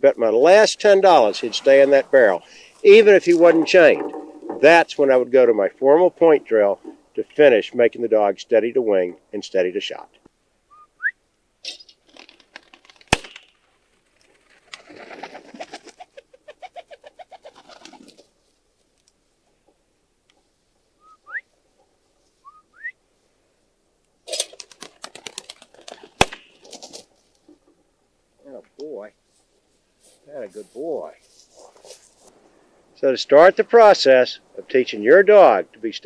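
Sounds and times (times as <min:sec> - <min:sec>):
rising whistle-like chirps: 0:10.7 - 0:11.2, 0:21.0 - 0:21.5, 0:22.4 - 0:23.0
pigeon wings flapping: 0:12.0 - 0:18.2, 0:24.3 - 0:27.1.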